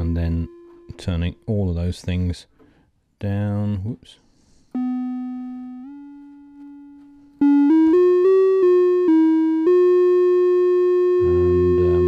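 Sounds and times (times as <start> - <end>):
buzzy synthesizer notes: 7.4 - 12.0.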